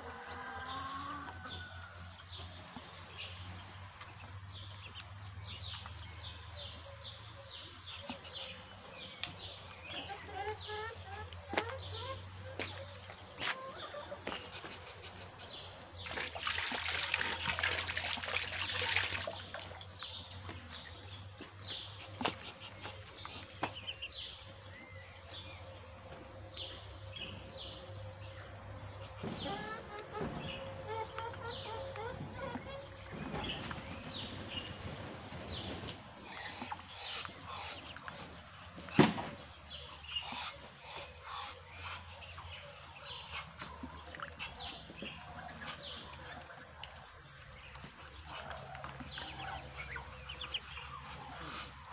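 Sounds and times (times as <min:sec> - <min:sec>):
ducklings pecking at feed: 0:08.1 - 0:51.9.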